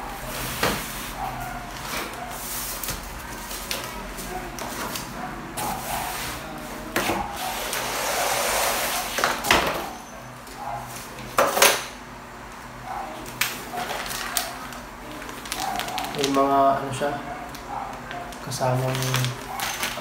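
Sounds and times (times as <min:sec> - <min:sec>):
cardboard and wrap rustling: 0:13.2 - 0:16.6, 0:17.4 - 0:20.0.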